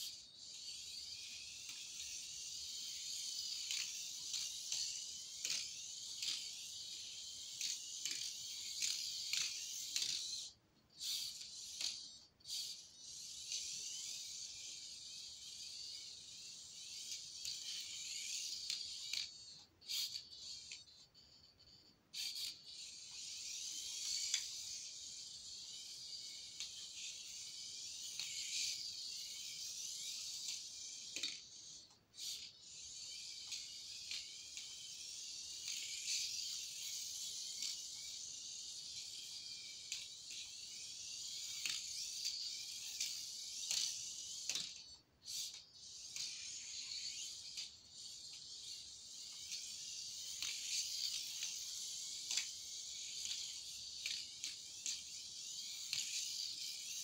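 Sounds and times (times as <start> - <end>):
micro rc car motor whirring: 0.0 - 57.0.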